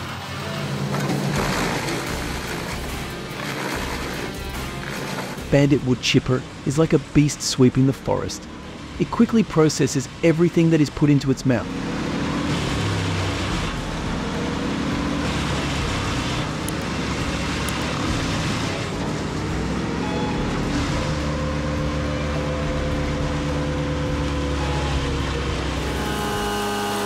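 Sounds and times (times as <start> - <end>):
wood chipper engine running: 0.0 - 27.0.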